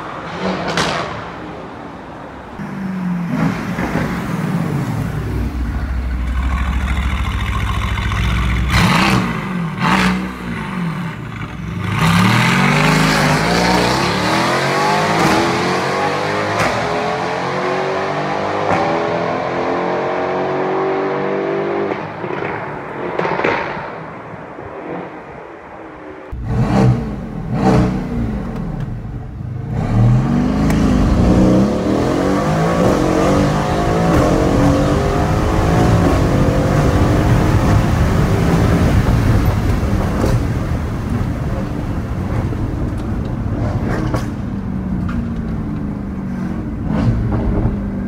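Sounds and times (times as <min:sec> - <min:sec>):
exhaust cracks: 0:02.6 - 0:10.5
car engine revving: 0:02.6 - 0:22.5, 0:26.3 - 0:41.2.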